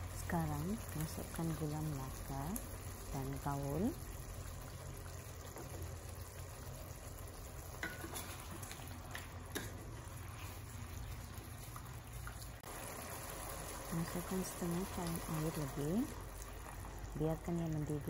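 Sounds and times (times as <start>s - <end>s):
thick gravy simmering: 0.0s - 18.0s
wooden spatula stirring: 7.8s - 12.6s.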